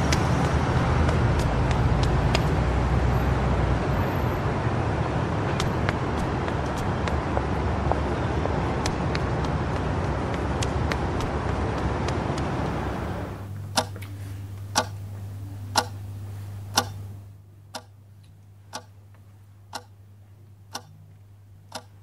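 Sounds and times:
passing cars: 0:00.0 - 0:17.2
low traffic rumble: 0:00.0 - 0:22.0
sharp ticks: 0:13.7 - 0:14.1, 0:14.7 - 0:15.0, 0:15.7 - 0:16.0, 0:16.7 - 0:17.1, 0:17.7 - 0:18.0, 0:18.7 - 0:18.9, 0:19.7 - 0:19.9, 0:20.7 - 0:20.9, 0:21.7 - 0:22.0.

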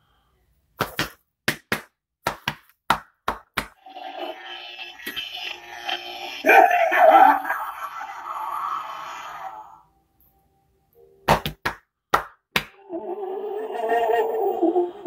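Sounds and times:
rough pitched sound effect: 0:03.8 - 0:09.9.

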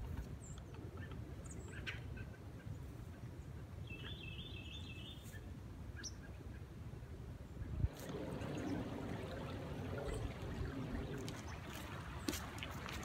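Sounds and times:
songbirds chirping: 0:00.0 - 0:13.0
steady low rumble: 0:07.7 - 0:13.0.

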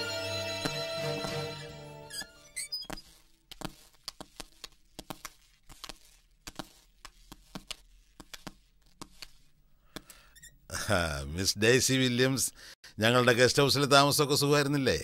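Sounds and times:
footsteps on hard floor: 0:00.0 - 0:09.4.

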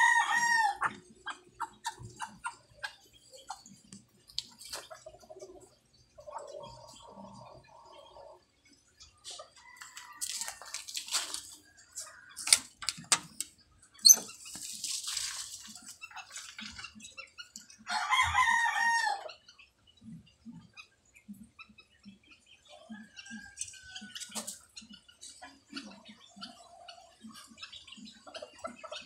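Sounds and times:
rooster crowing: 0:00.0 - 0:00.8, 0:17.9 - 0:19.2
sharp clicks and rustles: 0:09.8 - 0:17.0.

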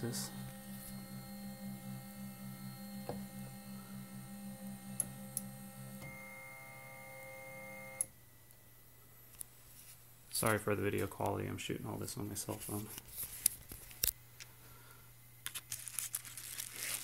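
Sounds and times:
stepper motor humming and whining: 0:00.0 - 0:08.1
motor stopping click: 0:04.5 - 0:06.2.

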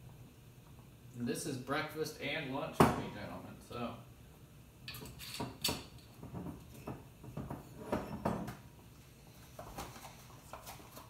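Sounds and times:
soft rustling and clatter: 0:09.3 - 0:11.0.

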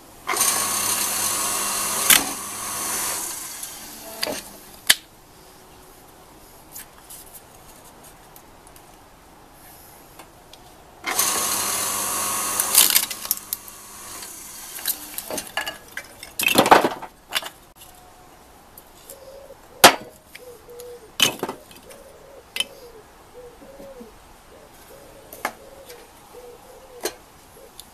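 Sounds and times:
log splitter motor humming: 0:00.0 - 0:04.8, 0:11.0 - 0:15.7
wood splitting crack: 0:00.3 - 0:05.0, 0:11.1 - 0:17.6.

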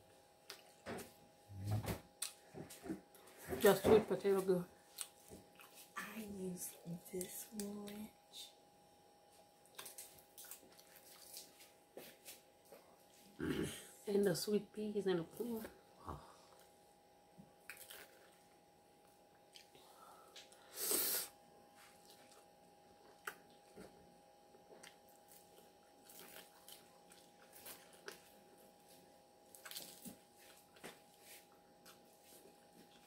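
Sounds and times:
chewing and crunching salad: 0:00.4 - 0:01.1, 0:02.2 - 0:03.5, 0:04.8 - 0:06.0, 0:09.6 - 0:13.3, 0:17.6 - 0:18.6, 0:19.3 - 0:19.8, 0:21.8 - 0:33.0.

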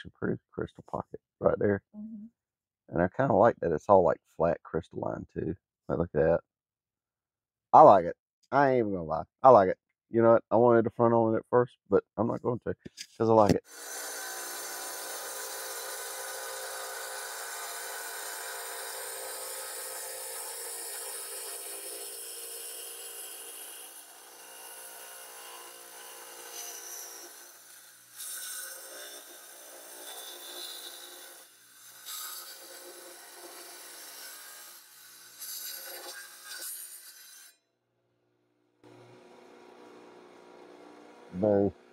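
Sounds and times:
tile saw grinding stone: 0:13.6 - 0:37.6.

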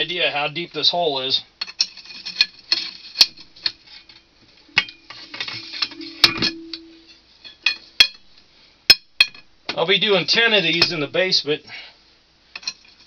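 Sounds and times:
low steady hum: 0:03.3 - 0:09.6
metal rods clanking: 0:04.7 - 0:07.1.

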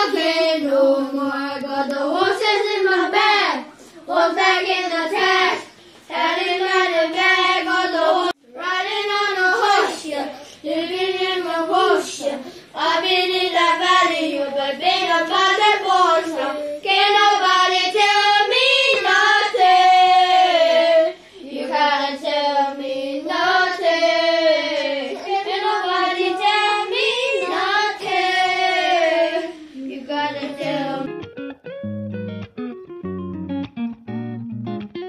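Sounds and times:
high voice singing: 0:28.2 - 0:31.1.

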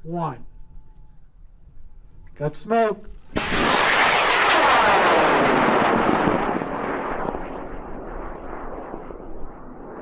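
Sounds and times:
rocket motor rushing: 0:03.3 - 0:08.0.

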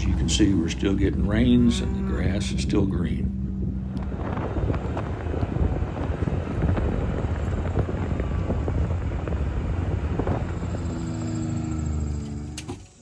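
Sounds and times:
wind buffeting microphone: 0:00.0 - 0:12.2
steady humming tone: 0:00.0 - 0:13.0
utility vehicle engine: 0:00.0 - 0:13.0.

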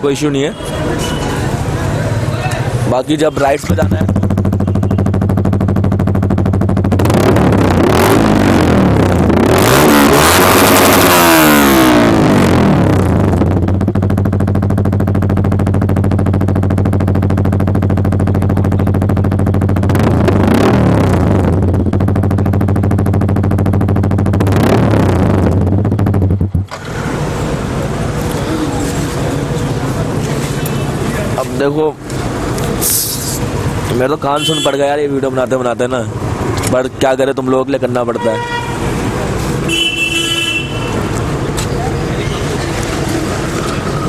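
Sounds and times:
motorcycle engine revving: 0:00.7 - 0:44.0
motorcycle engine idling: 0:01.1 - 0:07.0, 0:12.8 - 0:24.5, 0:25.2 - 0:31.4.

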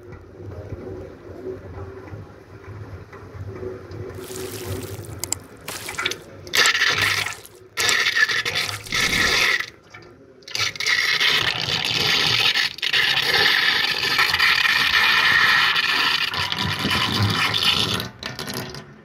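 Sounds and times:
water splashing into sink drain: 0:04.2 - 0:09.7.

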